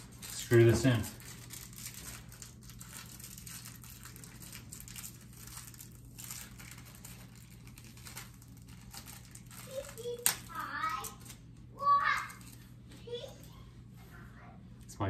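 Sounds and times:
hands scratching and crinkling: 0.0s - 11.4s.

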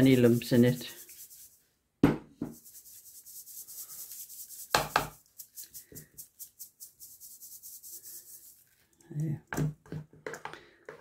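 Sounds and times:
sugar rasping through sieve mesh: 0.0s - 1.6s, 2.6s - 9.2s.

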